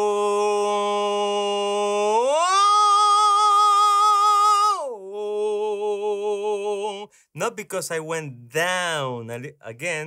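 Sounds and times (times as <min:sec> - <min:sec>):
man singing sustained vowel: 0:00.0 - 0:07.6.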